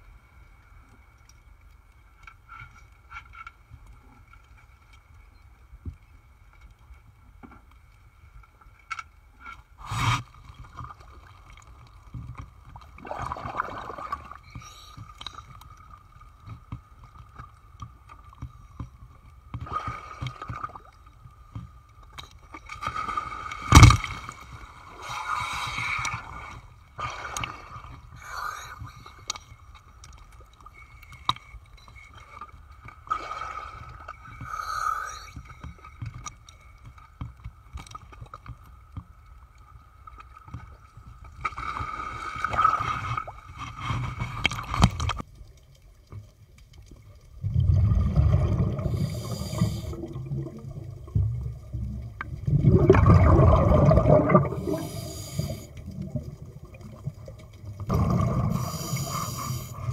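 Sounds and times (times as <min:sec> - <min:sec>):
underwater regulator bubbles: 0:47.4 - 0:59.9.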